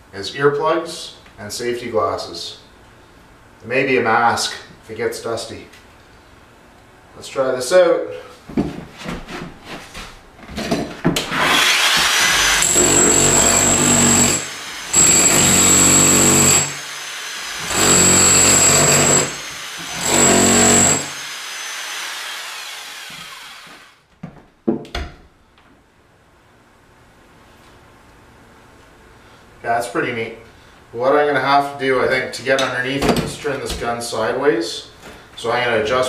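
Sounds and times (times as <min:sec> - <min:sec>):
demolition hammer chiselling tiles: 0:10.5 - 0:21.3.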